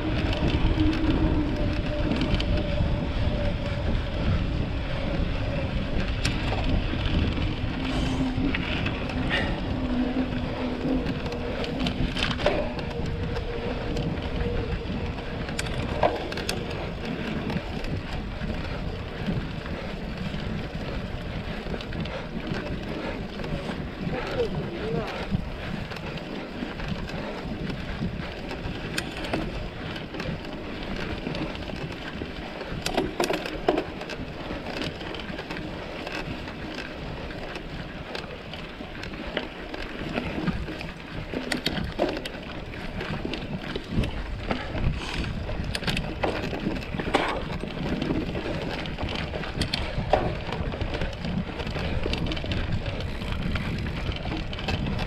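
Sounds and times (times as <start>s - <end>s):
bike clicks and rattles: 0.0s - 55.0s
tyre noise on dirt trail: 0.0s - 55.0s.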